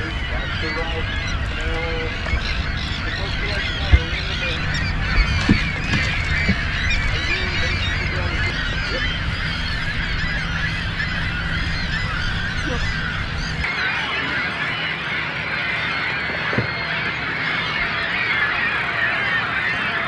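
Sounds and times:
low rumble: 0.0s - 13.7s
gulls squawking: 0.0s - 20.0s.

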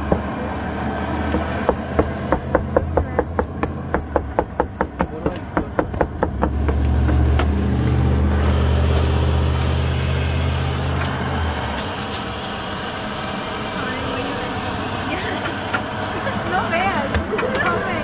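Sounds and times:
knife chopping on plastic board: 1.4s - 7.5s
low hum: 5.6s - 16.2s.

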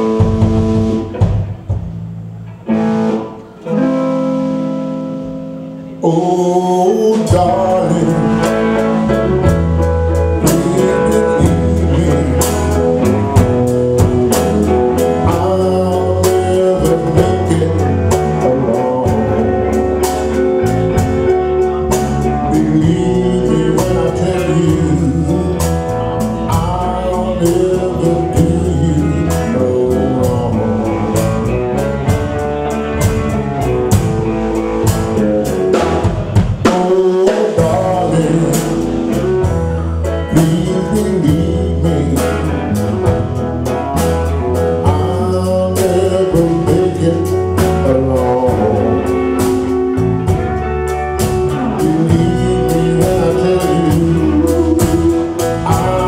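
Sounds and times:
drum kit and cymbals: 0.0s - 5.4s, 7.2s - 56.0s
electric bass: 0.0s - 56.0s.

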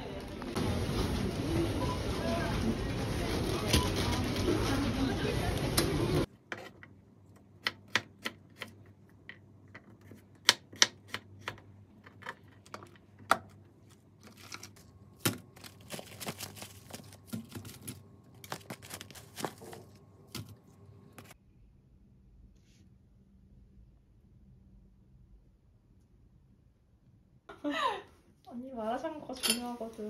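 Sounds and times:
plastic packaging handled: 12.4s - 21.4s.

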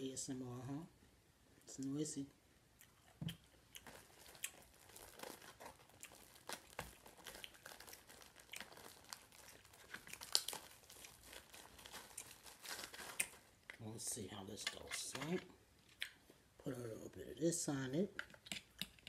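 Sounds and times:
plastic wrapper crinkling: 3.3s - 15.5s.

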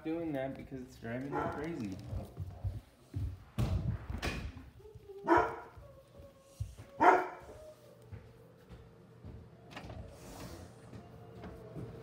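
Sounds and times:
dog barking: 1.3s - 1.7s, 5.2s - 5.8s, 7.0s - 7.6s.

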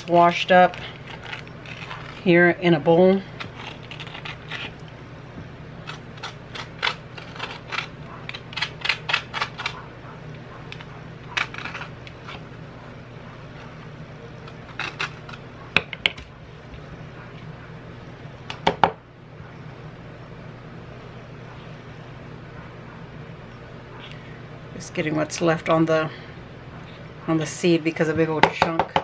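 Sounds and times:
plastic tool scraping avocado: 0.0s - 2.6s, 3.4s - 4.8s, 5.8s - 9.8s, 10.7s - 12.5s.

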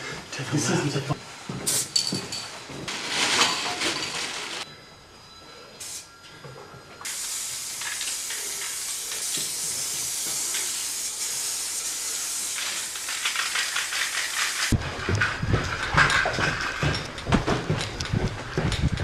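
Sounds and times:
spray paint can hissing: 5.8s - 6.0s, 7.0s - 14.8s.

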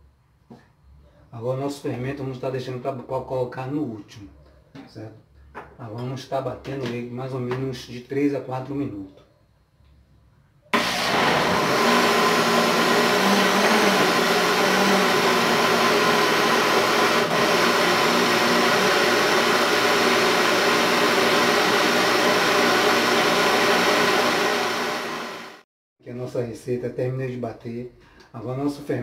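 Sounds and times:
blender running at high speed: 10.8s - 25.6s.

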